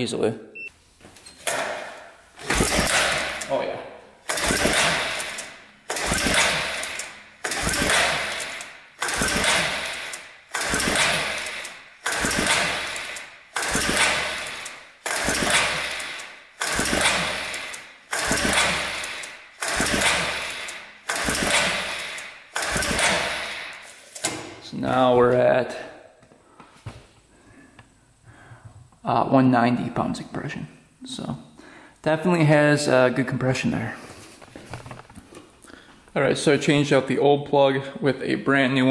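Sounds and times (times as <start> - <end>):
engine pull-starter whirr: 2.4 - 3.6, 4.2 - 24.5.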